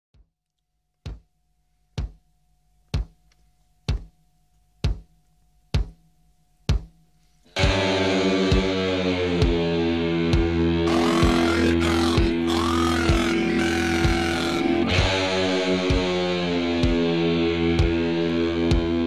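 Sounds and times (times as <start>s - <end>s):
bass drum beats: 1.0s - 19.0s
loud guitar-led band: 7.6s - 19.0s.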